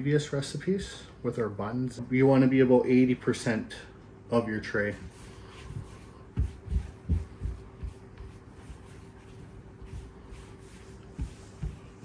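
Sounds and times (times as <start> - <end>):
faint steady hum: 0.0 - 12.0
hands patting dough: 4.9 - 12.0.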